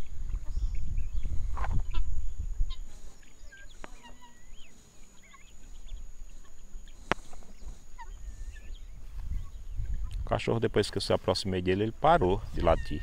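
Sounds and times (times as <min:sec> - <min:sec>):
guineafowl short calls: 0:01.6 - 0:10.1, 0:12.4 - 0:13.0.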